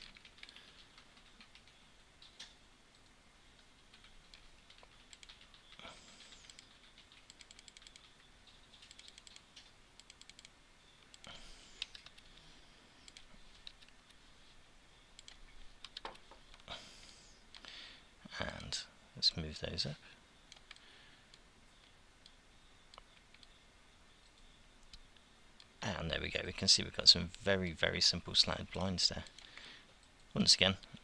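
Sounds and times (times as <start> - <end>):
faint keyboard typing: 0.0 - 14.2, 15.1 - 18.8, 20.4 - 23.6, 28.3 - 31.0.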